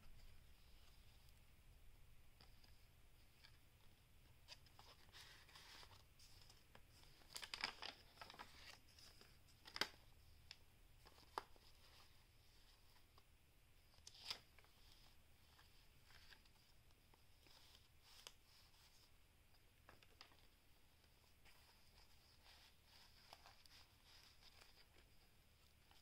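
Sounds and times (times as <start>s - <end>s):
pages ticking and tapping: 4.3s - 11.8s
paper pages rustling: 4.3s - 13.2s, 13.9s - 19.1s, 19.8s - 26.0s.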